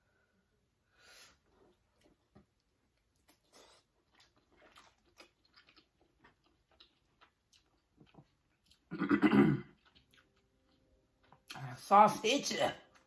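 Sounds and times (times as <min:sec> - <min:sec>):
close chewing with wet mouth clicks: 0:01.7 - 0:08.9, 0:09.7 - 0:11.6.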